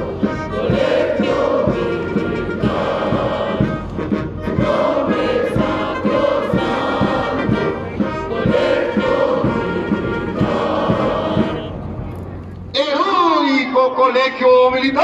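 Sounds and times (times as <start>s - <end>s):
crowd singing a hymn in unison: 0.0s - 11.9s
military band playing: 0.0s - 13.0s.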